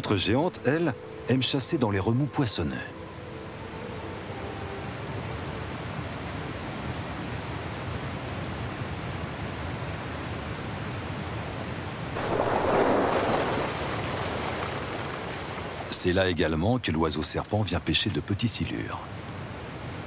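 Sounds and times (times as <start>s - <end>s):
river rapid and waterfall roaring: 11.8s - 16.1s.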